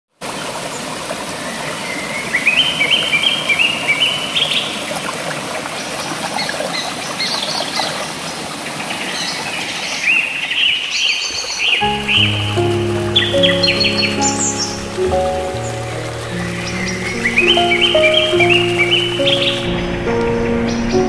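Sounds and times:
stream splashing over stones: 0.2s - 19.9s
bird chirping: 8.9s - 21.0s.

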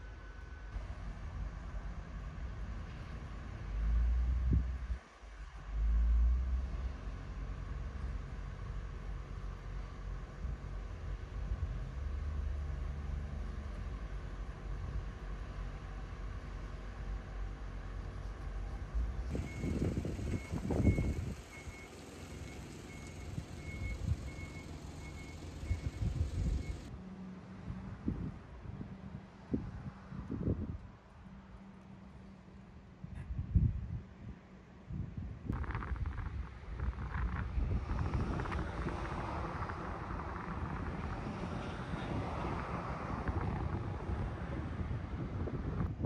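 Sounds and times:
wind buffeting microphone: 18.8s - 21.9s, 23.2s - 26.9s, 34.9s - 46.0s.

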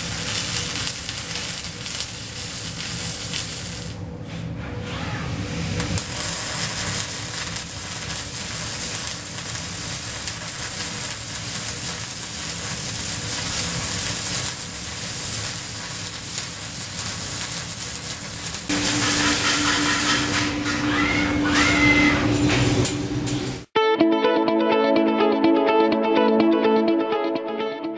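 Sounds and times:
welding arc crackling: 0.0s - 4.1s, 5.7s - 23.7s
steady machine hum: 18.0s - 23.7s
short whines: 18.8s - 22.6s.

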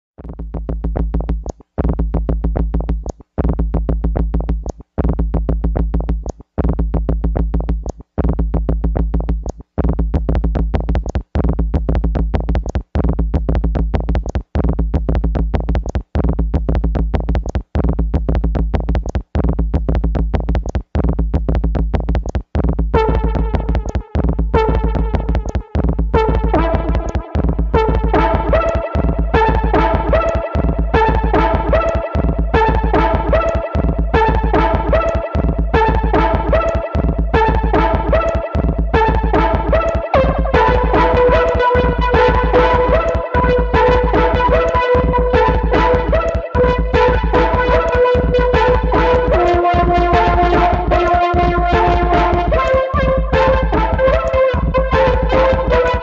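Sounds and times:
electronic synthesizer music: 0.7s - 56.0s
high synth line: 26.2s - 56.0s.

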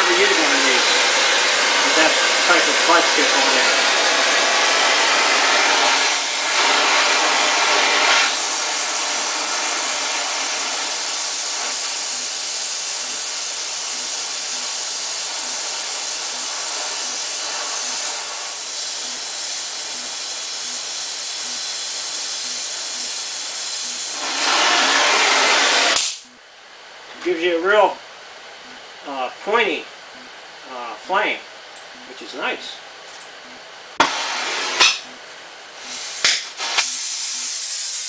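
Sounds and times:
welding flame hissing: 0.0s - 26.3s, 34.0s - 38.0s.

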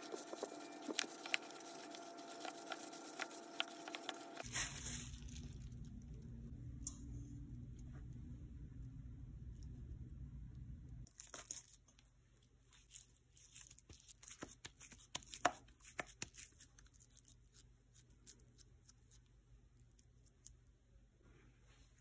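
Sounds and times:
hands patting raw meat: 0.0s - 4.4s.

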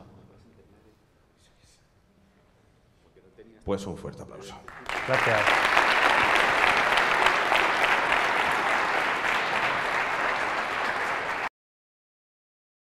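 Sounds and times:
audience applauding: 4.7s - 11.5s.

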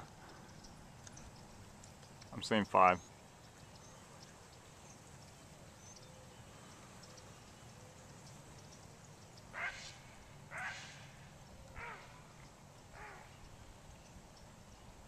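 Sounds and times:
harsh bird calls: 9.3s - 13.5s.

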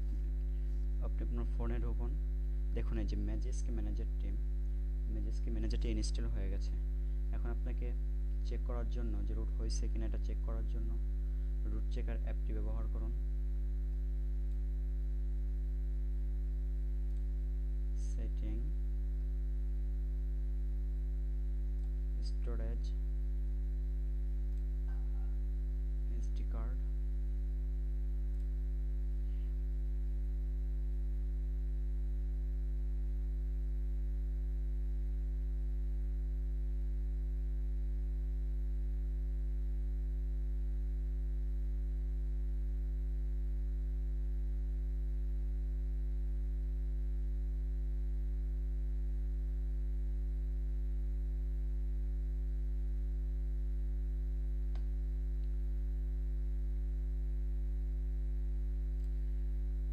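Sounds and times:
electrical mains hum: 0.0s - 59.9s.

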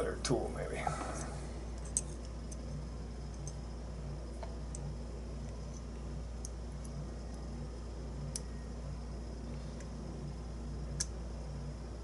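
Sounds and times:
steady low hum: 0.0s - 12.0s
faint metal clicks and ticks: 8.2s - 8.5s.

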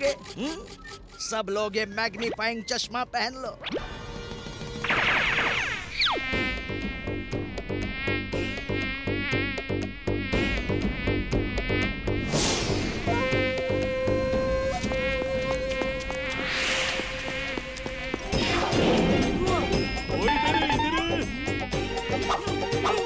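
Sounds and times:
cartoon mosquito buzzing: 4.6s - 23.0s.

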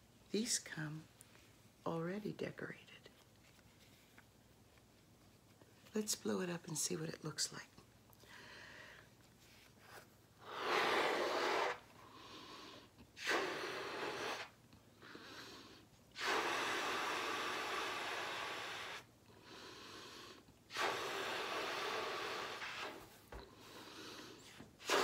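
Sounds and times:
woman blowing up balloon: 10.4s - 25.0s.

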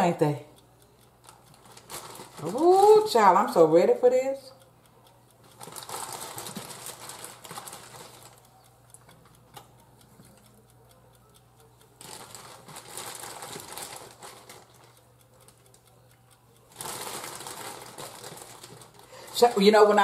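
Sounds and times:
plastic bag crinkling: 1.6s - 3.0s, 5.6s - 8.4s, 12.0s - 14.9s, 16.7s - 19.6s.

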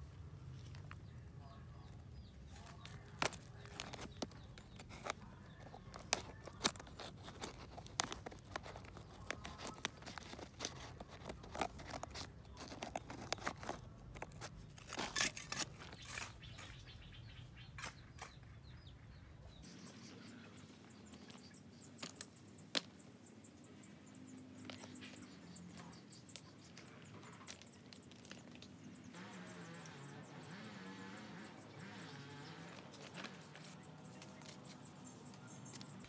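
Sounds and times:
scissors snipping among leaves: 2.5s - 16.7s.

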